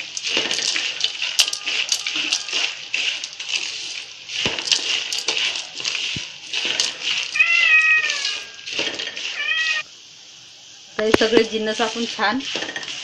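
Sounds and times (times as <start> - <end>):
spatula stirring dry nuts in pan: 0.0 - 9.4
cat meowing: 7.4 - 8.7, 9.3 - 9.8.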